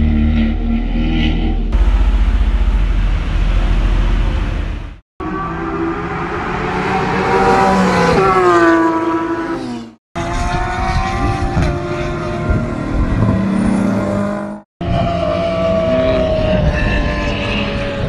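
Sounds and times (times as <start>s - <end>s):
sports car engines passing: 3.0s - 18.0s.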